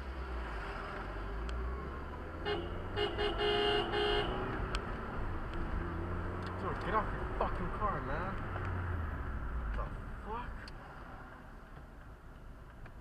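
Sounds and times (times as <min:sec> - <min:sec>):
car engine and road rumble: 0:00.0 - 0:13.0
car horn toots: 0:02.4 - 0:04.4.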